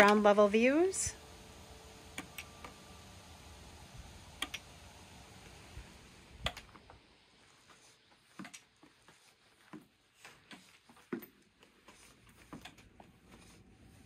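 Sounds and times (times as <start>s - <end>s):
faint clicks and taps: 8.2s - 13.2s.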